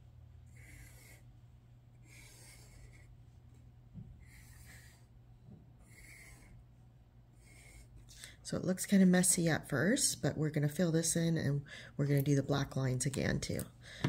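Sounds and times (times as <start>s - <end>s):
marker scratching on paper: 0.5s - 1.3s, 2.1s - 3.1s, 4.2s - 5.1s, 5.8s - 6.6s, 7.4s - 7.9s.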